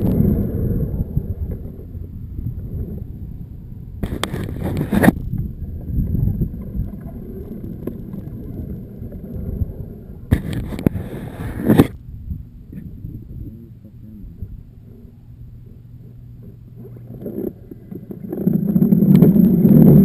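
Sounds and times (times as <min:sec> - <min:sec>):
wind rumbling on microphone: 0:00.0 - 0:20.0
short crackling bursts: 0:04.0 - 0:05.2.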